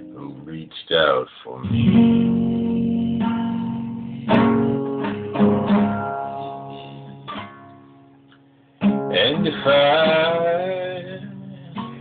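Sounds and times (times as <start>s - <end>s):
guitar strumming: 0.0s - 12.0s
person singing: 1.5s - 5.0s, 9.1s - 12.0s.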